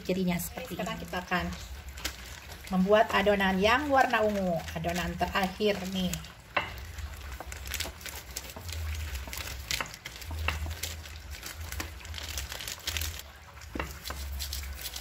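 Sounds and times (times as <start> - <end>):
plastic sheet crinkling: 0.1 - 15.0.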